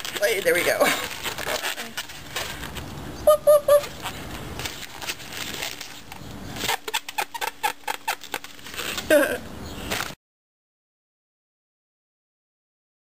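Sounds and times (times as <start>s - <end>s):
balloons squeaking and rubbing: 0.0s - 2.8s, 3.4s - 10.2s.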